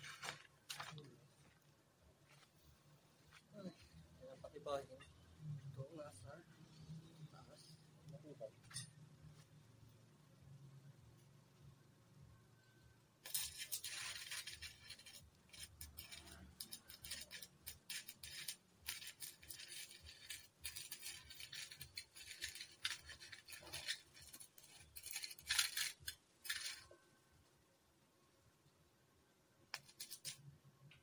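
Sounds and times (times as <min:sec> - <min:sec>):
welding arc crackling: 0:13.4 - 0:26.9.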